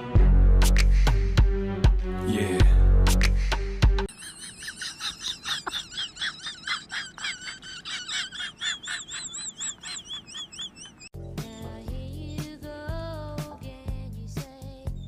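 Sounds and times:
small animal chirping calls: 4.3s - 11.7s.

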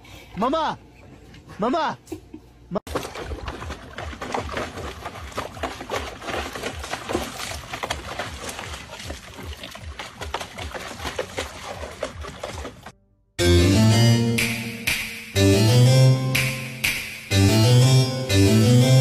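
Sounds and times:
dog pawing at water: 2.9s - 12.9s
water splashing in a plastic tub: 2.9s - 13.0s.

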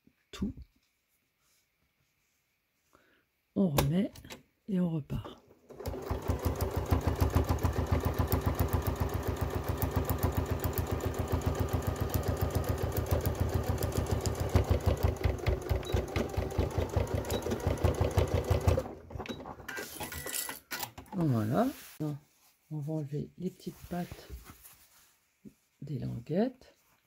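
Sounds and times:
electric sewing machine stitching: 5.7s - 19.2s.

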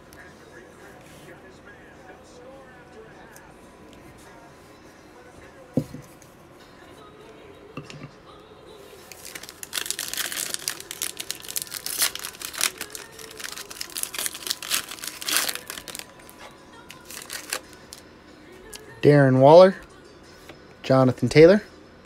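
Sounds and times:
foil pack crinkling: 9.0s - 18.0s.

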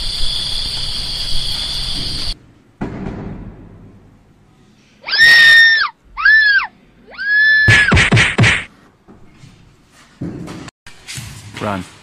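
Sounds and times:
high-pitched screams: 5.0s - 7.9s
sharp whacks: 7.7s - 8.7s.

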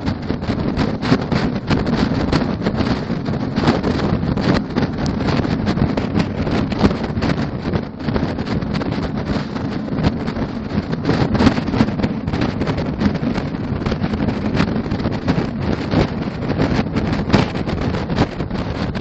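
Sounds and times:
road rumble: 0.0s - 19.0s
wind buffeting microphone: 0.0s - 19.0s.

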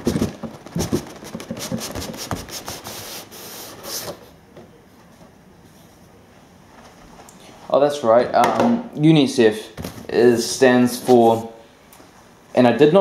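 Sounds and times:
cardboard box scraping and knocking: 0.0s - 2.8s
cardboard sliding against cardboard: 0.0s - 4.3s.

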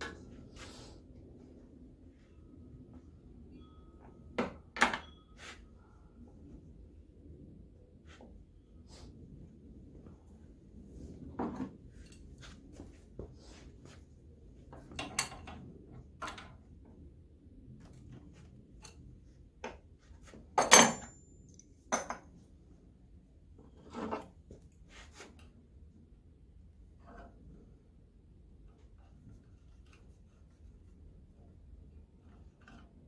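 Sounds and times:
metal tools clinking on workbench: 20.6s - 21.2s.

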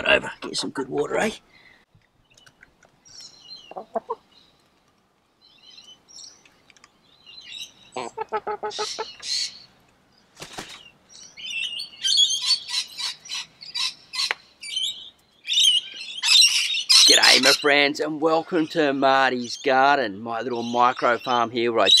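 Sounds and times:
hens clucking: 3.6s - 4.3s, 7.9s - 9.5s
hens high-pitched calls: 3.6s - 4.3s, 7.9s - 9.7s.

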